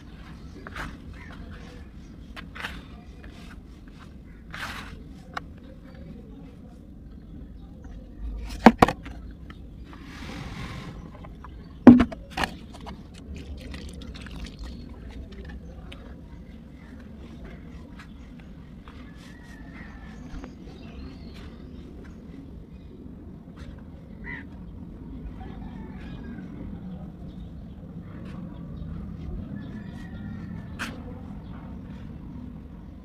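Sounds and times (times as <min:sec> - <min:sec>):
dry clay crunching: 0:11.4 - 0:16.1.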